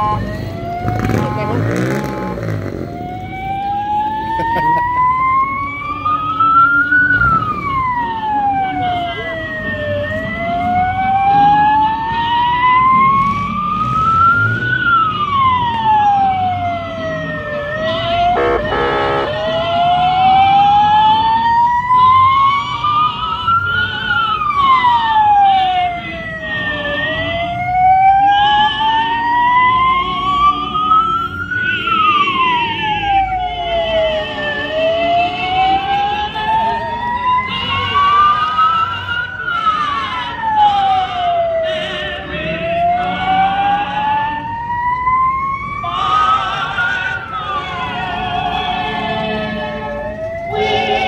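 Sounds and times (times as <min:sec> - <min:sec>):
fast warbling siren: 0:00.0 - 0:41.7, 0:42.5 - 0:51.0
wailing siren: 0:00.0 - 0:51.0
pulsing horn blast: 0:18.2 - 0:19.5, 0:48.3 - 0:51.0.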